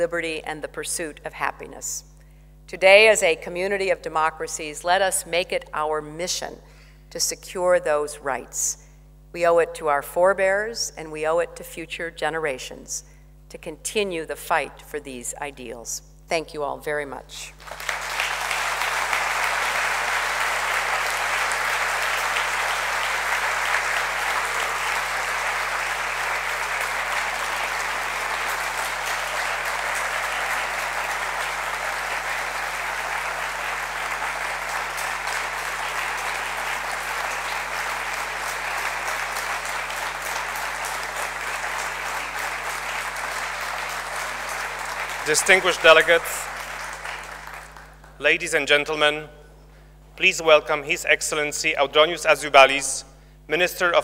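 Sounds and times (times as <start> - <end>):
audience applauding: 17.6 - 48.2.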